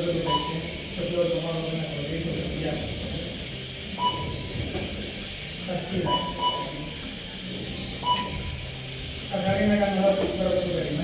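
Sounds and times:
room noise: 0.0 - 11.0
short electronic beeps: 0.2 - 0.8, 4.0 - 4.6, 6.0 - 7.0, 8.0 - 8.6.

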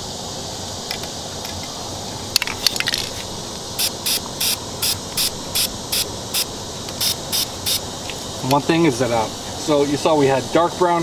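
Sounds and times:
steady high hiss: 0.0 - 11.0
spray can sputtering: 2.4 - 8.6
short high-pitched pulses: 3.8 - 7.8.

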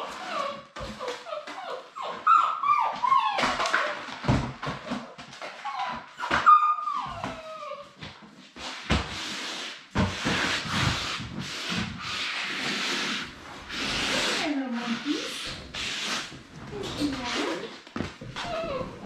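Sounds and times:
puppies whining: 0.0 - 8.2, 15.9 - 19.0.

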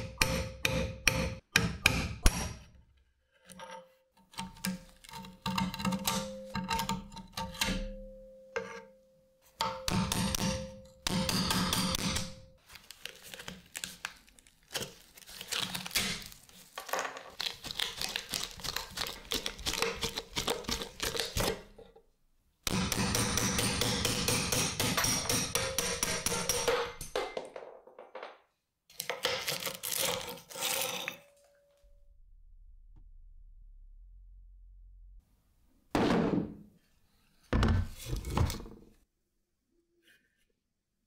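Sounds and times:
hammer on metal punch: 0.0 - 2.6, 22.7 - 27.0.

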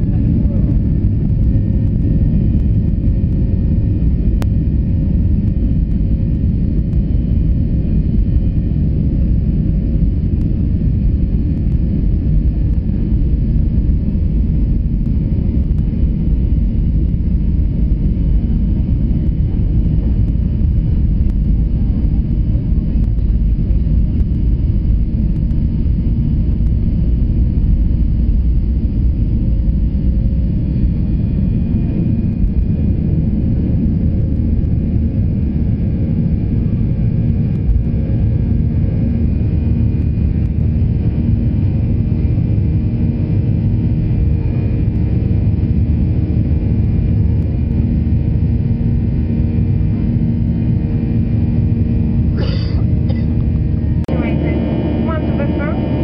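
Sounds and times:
wheels rumbling on runway: 0.0 - 41.4
jet engines at take-off thrust: 0.0 - 56.0.

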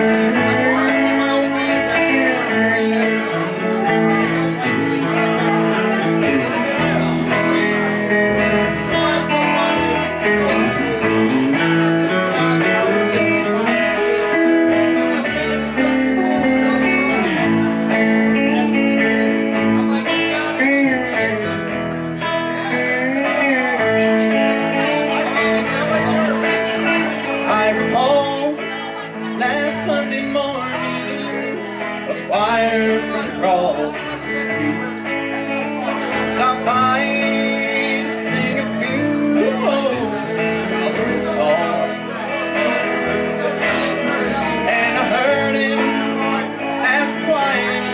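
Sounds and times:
country band playing: 0.0 - 47.9
guitar lead with bent notes: 0.0 - 47.9.

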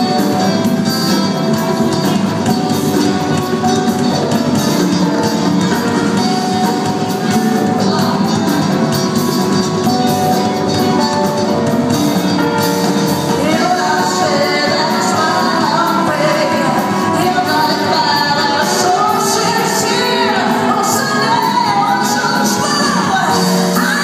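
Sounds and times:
live pop band with strings: 0.0 - 24.0
woman singing into a microphone: 13.2 - 24.0.

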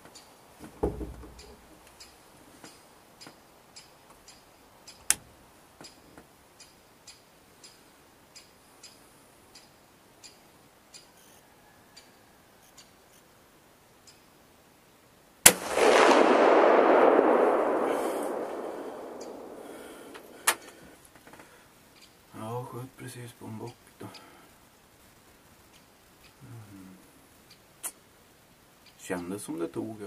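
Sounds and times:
faint ticking: 1.3 - 11.2, 15.7 - 29.4
rifle shot echoing: 15.4 - 20.8.

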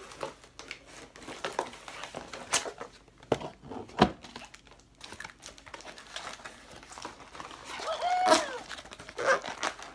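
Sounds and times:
packaging crinkling: 4.2 - 9.9.

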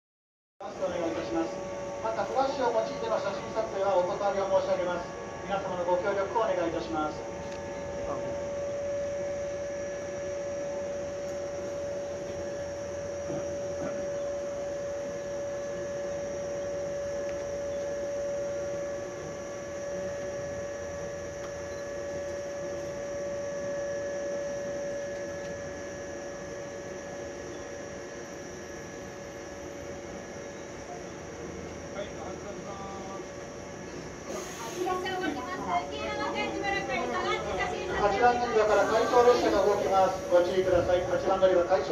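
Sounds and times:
electric train humming: 0.6 - 41.9.

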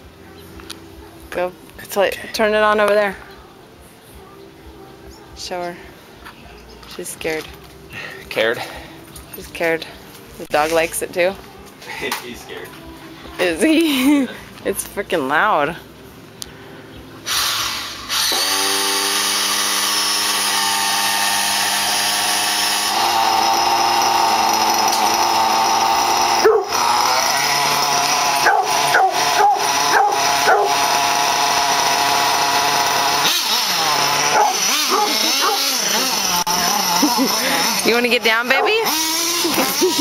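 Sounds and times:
small glow engine running: 17.3 - 40.0
dog barking: 26.4 - 26.7, 28.4 - 30.7, 34.4 - 35.7, 38.6 - 38.9.

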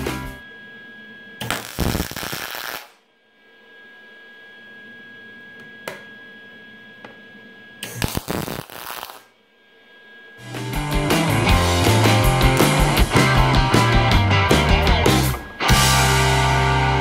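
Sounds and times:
faint steady hum: 0.0 - 10.8
crackling welding arc: 1.4 - 3.0, 7.9 - 9.3.

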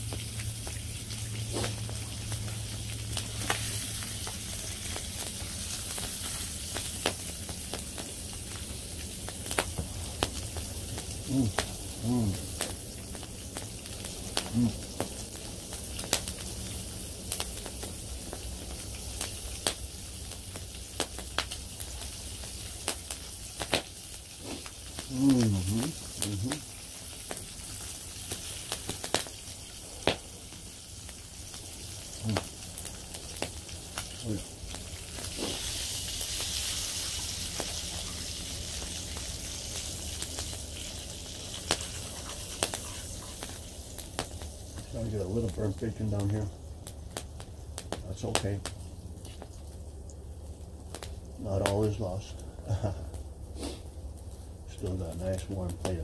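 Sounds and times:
bacon sizzling in a pan: 0.0 - 56.0
steady hiss: 0.0 - 56.0
wood fire crackling: 0.0 - 56.0
sharp pops: 22.8 - 25.5, 30.0 - 30.3, 32.2 - 35.7, 41.4 - 44.5.

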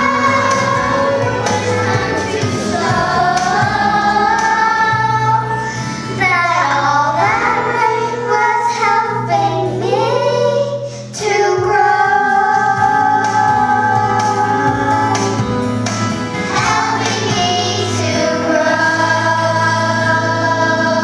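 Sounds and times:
instrumental accompaniment: 0.0 - 6.6
children singing: 0.0 - 15.5, 16.3 - 21.0.

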